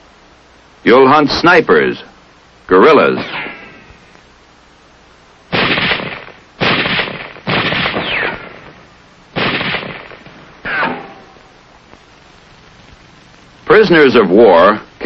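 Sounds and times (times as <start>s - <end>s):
falling whine: 0.0s - 15.0s
rifle gunshots echoing: 5.5s - 11.4s.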